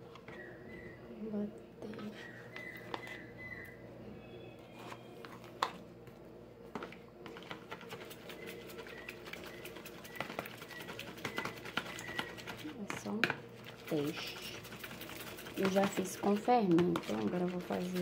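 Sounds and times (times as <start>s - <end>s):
metal spoon scraping plastic tub: 13.8s - 18.0s.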